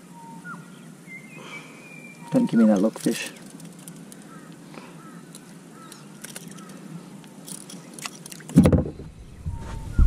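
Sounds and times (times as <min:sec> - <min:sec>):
thump on boat deck: 0:08.6 - 0:09.1.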